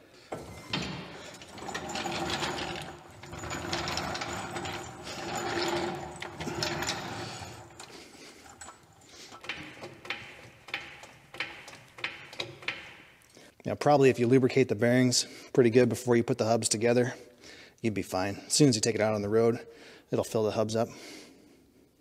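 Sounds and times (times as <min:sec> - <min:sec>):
mechanical rattling: 0:00.3 - 0:13.1.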